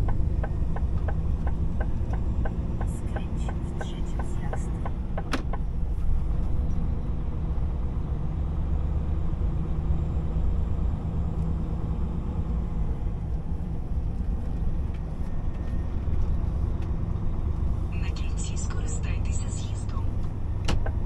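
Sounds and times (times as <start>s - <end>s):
diesel engine running: 0.0s - 21.0s
tyre and road noise: 9.2s - 21.0s.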